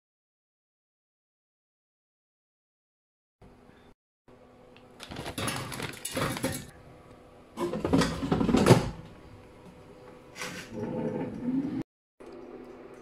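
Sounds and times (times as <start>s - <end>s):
plastic bag rustling and clattering: 5.0s - 6.7s.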